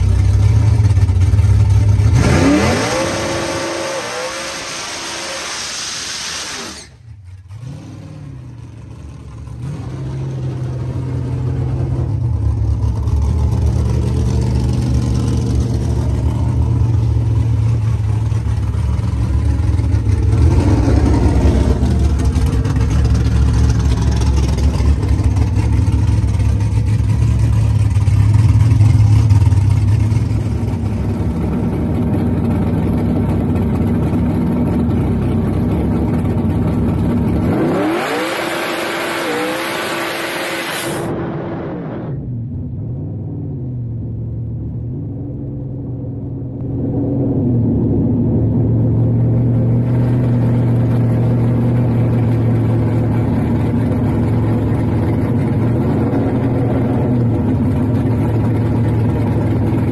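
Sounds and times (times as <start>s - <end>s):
car engine idling: 0.0s - 38.3s, 41.0s - 59.9s.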